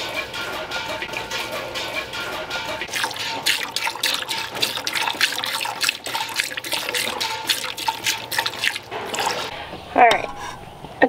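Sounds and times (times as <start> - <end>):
milk squirting into metal pail: 2.9 - 9.6.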